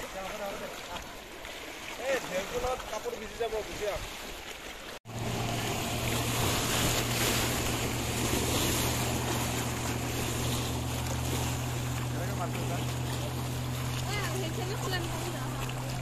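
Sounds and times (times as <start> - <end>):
small waves washing: 0.0 - 16.0
speedboat engine running: 5.0 - 16.0.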